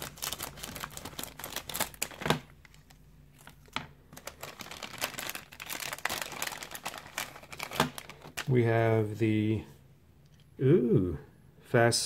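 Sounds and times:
crinkly plastic packaging rustling: 0.0 - 8.7.

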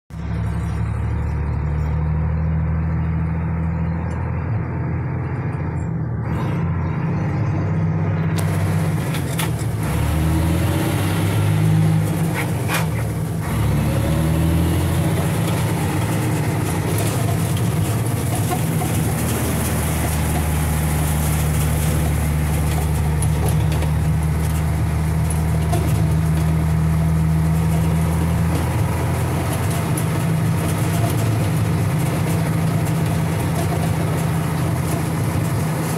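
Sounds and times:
truck engine running: 0.1 - 35.9
knocks and rattles: 8.4 - 35.9.

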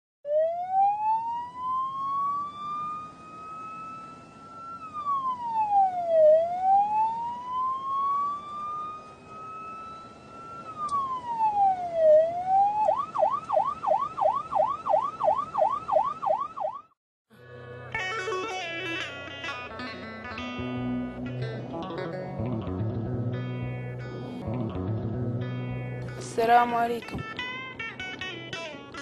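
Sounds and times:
electronic siren wailing and yelping: 0.3 - 17.0.

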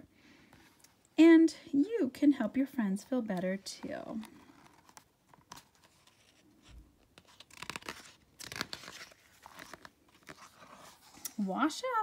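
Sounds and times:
book pages turning: 3.3 - 11.5.

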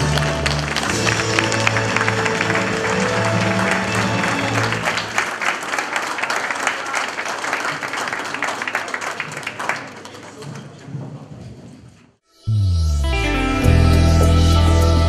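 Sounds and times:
music: 0.0 - 5.0, 12.2 - 15.0
audience applauding: 0.0 - 10.8.

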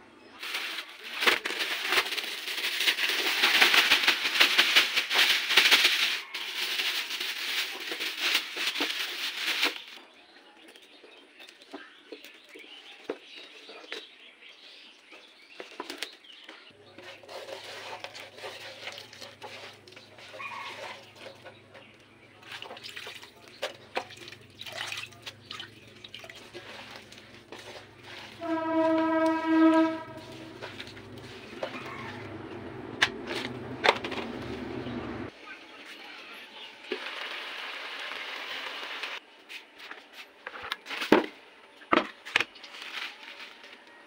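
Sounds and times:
spinach leaves rustling: 0.4 - 10.0, 16.8 - 21.7, 22.4 - 35.0, 42.6 - 43.8
horn-like tone: 28.4 - 30.9
steady low hum: 29.8 - 35.3
crackling sizzle: 36.8 - 39.2.

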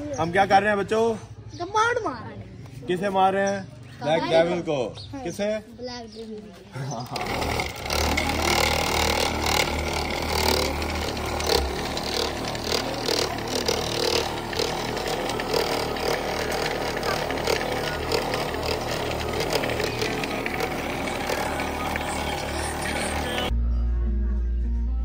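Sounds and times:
electric polisher running: 7.2 - 23.5.

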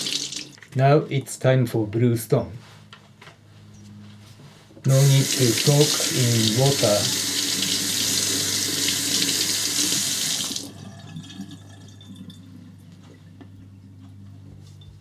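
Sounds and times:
faucet running: 0.0 - 0.6, 4.9 - 12.8.

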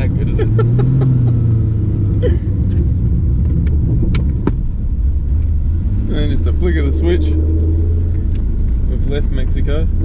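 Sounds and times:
car engine droning from cabin: 0.0 - 10.0.

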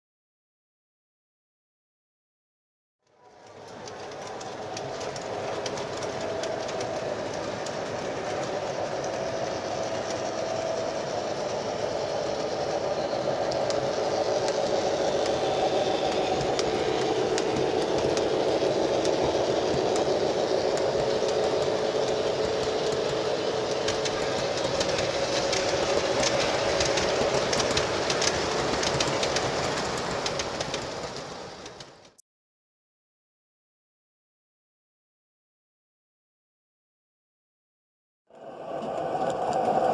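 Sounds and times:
model train motor hum: 3.2 - 32.1
wheels clicking over rail joints: 3.2 - 32.2.

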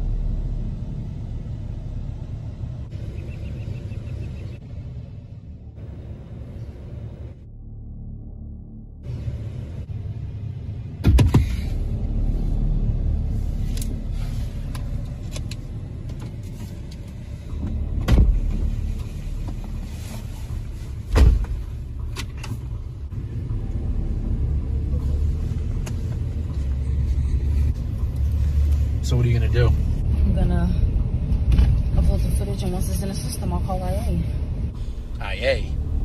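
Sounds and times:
truck rumble inside cab: 0.0 - 36.0
car door shutting: 11.0 - 11.8, 17.6 - 19.8, 21.0 - 22.6.

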